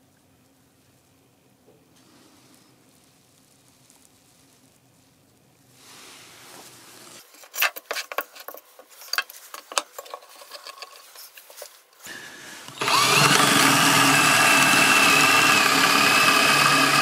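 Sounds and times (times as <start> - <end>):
soft hiss: 0.0 - 7.6.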